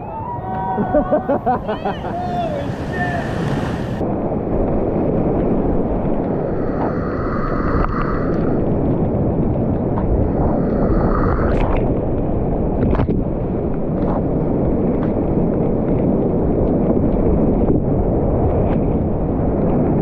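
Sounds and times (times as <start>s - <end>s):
whitewater rapids rushing: 0.0s - 4.0s.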